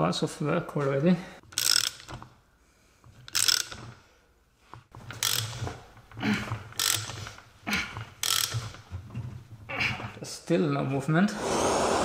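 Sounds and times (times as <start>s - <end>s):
socket ratchet clicking: 1.5s - 2.3s, 3.3s - 3.9s, 5.1s - 5.6s, 6.7s - 7.3s, 8.2s - 8.8s.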